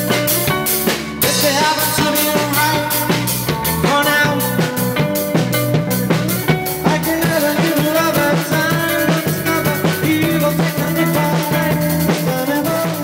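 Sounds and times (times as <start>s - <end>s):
drum kit beat: 0.0s - 13.0s
rock band playing: 0.0s - 13.0s.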